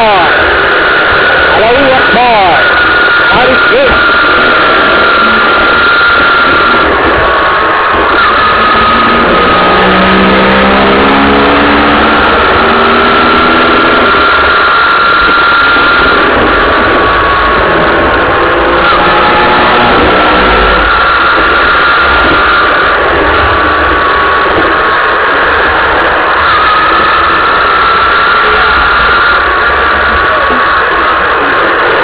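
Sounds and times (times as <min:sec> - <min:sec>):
car road and engine noise: 0:00.0 - 0:32.0
whining tone: 0:00.0 - 0:32.0.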